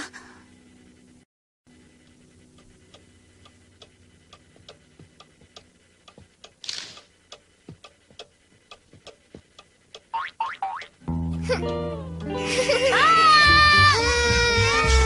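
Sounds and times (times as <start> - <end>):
faint even ticking: 1.7 - 11.0.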